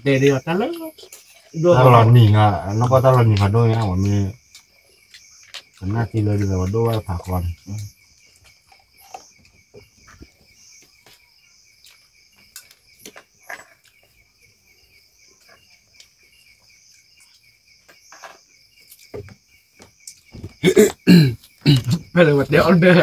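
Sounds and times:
crickets chirping: 0:00.0 - 0:23.0.

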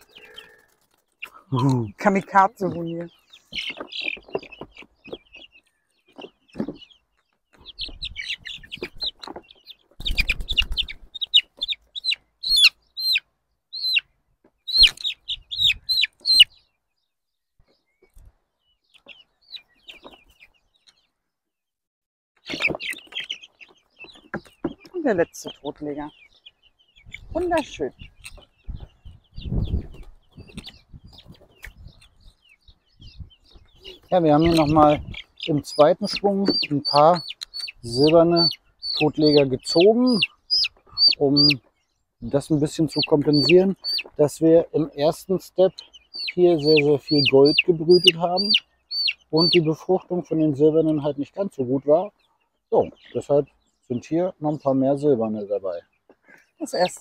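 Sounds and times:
wings fluttering: 0:00.0 - 0:01.5, 0:07.8 - 0:11.8
chick peeping: 0:00.0 - 0:21.3, 0:22.4 - 0:57.0
wing flapping: 0:10.0 - 0:11.1.

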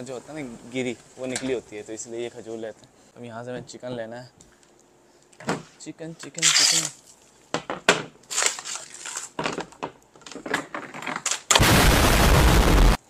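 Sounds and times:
frozen packs crinkling and knocking: 0:08.3 - 0:11.5.

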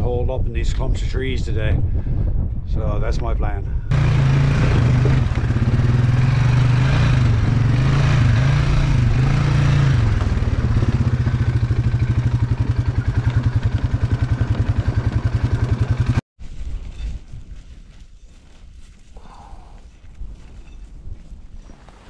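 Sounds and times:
atv engine running: 0:03.9 - 0:16.2.

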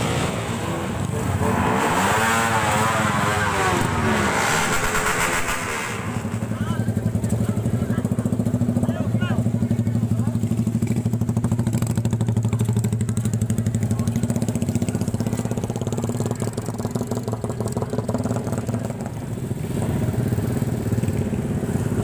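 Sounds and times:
motorcycle engine idling: 0:06.2 - 0:22.0.

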